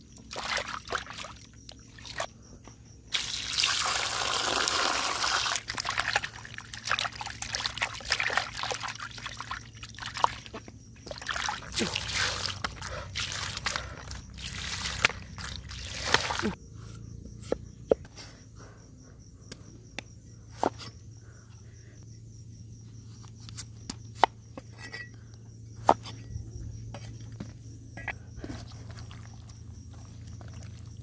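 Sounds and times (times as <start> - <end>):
water splashing and trickling: 0.0 - 2.3, 3.1 - 16.6, 28.4 - 31.0.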